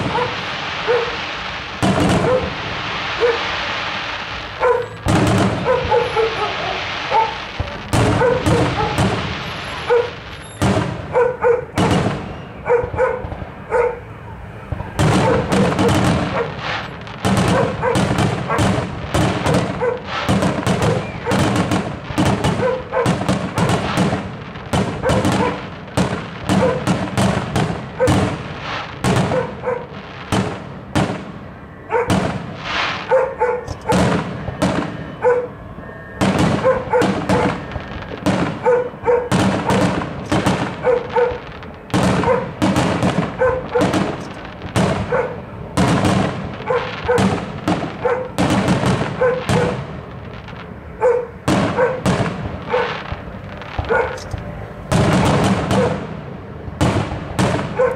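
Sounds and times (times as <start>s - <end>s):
fireworks bangs: 0.0s - 57.9s
fireworks crackle: 0.0s - 57.9s.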